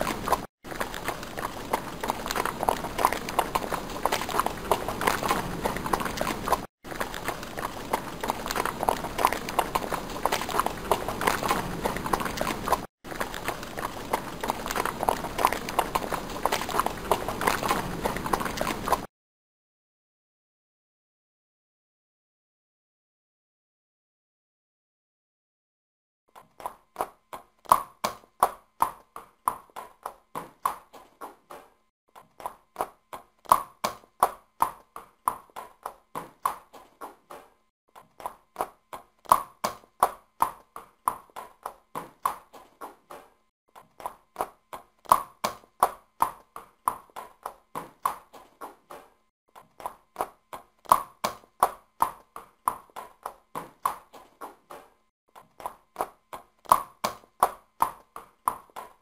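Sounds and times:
horse hooves clip-clopping: 0.0 - 19.1.

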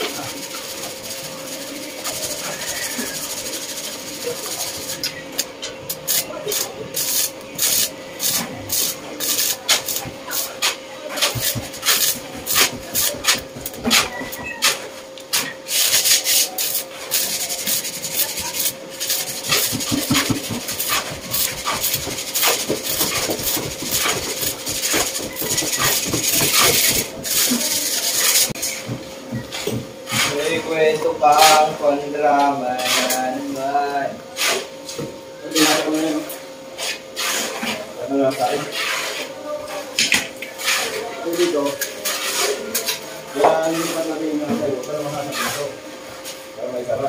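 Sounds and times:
filing on metal: 6.1 - 14.8, 15.4 - 28.6.

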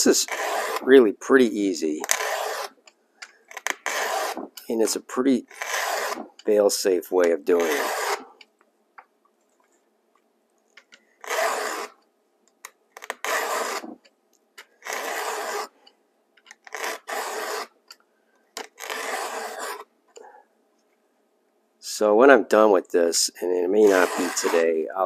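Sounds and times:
file rasping on chainsaw chain: 0.2 - 0.9, 2.0 - 2.7, 7.6 - 8.3, 23.8 - 24.8.

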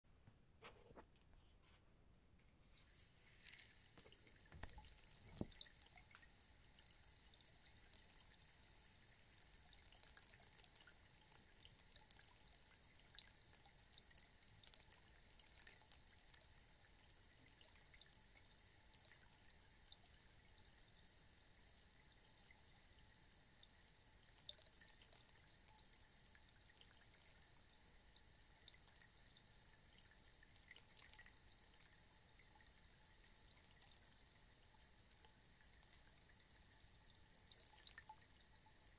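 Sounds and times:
rainstick trickling: 2.7 - 12.2.

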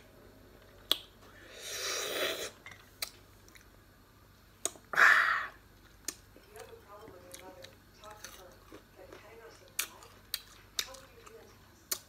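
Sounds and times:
breathy hiss: 1.3 - 2.6.

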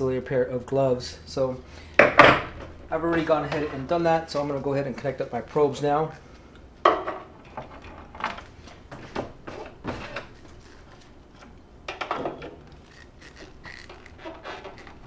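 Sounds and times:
wires rustling: 7.3 - 11.7, 12.5 - 15.0.

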